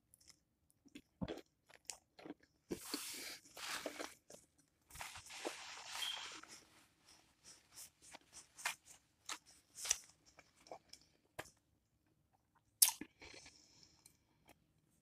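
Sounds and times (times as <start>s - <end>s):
paper napkin rustling: 4.9s - 10.0s
wet mouth clicks and smacks: 12.8s - 13.1s.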